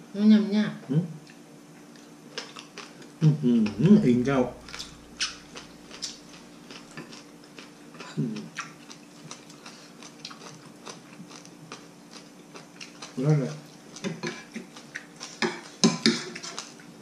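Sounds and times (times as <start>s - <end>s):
chewing: 1.2s - 3.7s, 4.6s - 17.0s
cutlery scraping ceramic dishes: 14.1s - 14.5s.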